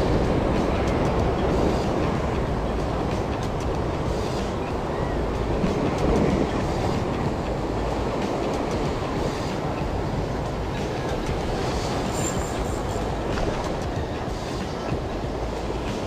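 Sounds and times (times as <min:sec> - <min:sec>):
surf breaking over rocks: 0:00.0 - 0:16.0
wind on microphone: 0:00.0 - 0:16.0.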